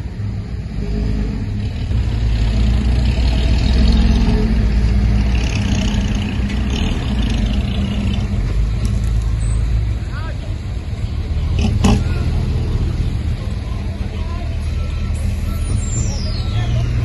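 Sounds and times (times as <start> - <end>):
diesel engine under load: 0.0 - 17.0.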